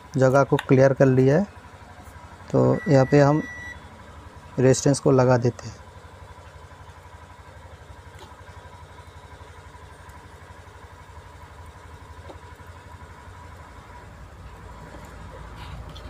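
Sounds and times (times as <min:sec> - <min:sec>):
motor rumbling: 0:00.0 - 0:16.0
thin steady tone: 0:02.5 - 0:05.9.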